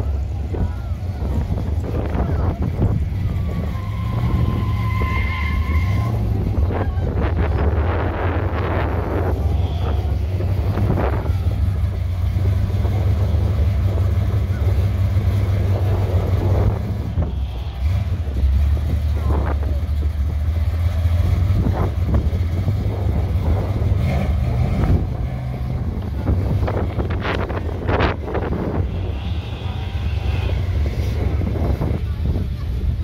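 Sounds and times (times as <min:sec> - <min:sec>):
car engine rumbling: 0:00.0 - 0:33.0
wind on microphone: 0:21.5 - 0:33.0.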